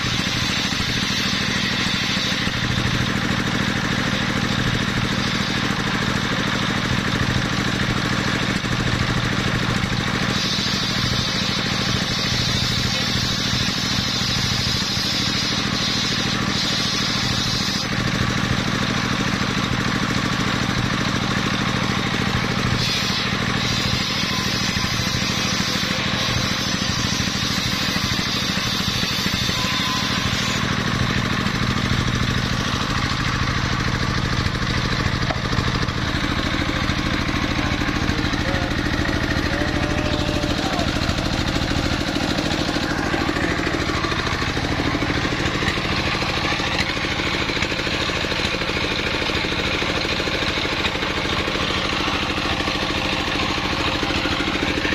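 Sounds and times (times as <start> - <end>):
circular saw running: 0.0 - 54.9
saw blade cutting wood: 0.0 - 54.9.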